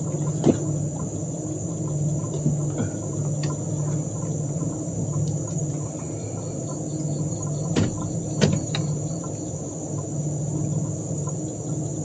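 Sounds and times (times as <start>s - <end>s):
low drone: 0.0s - 12.0s
sharp knocks: 7.7s - 8.8s.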